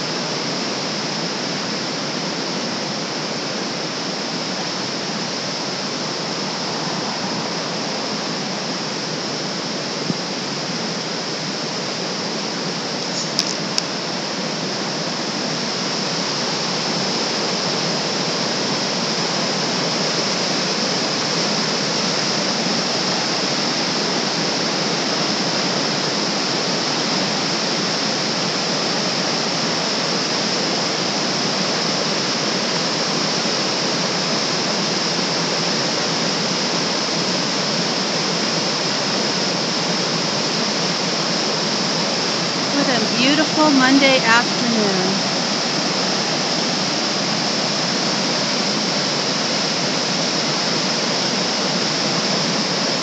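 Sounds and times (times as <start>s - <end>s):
river rushing over boulders: 0.0s - 43.1s, 45.2s - 53.0s
brief click: 13.2s - 13.9s.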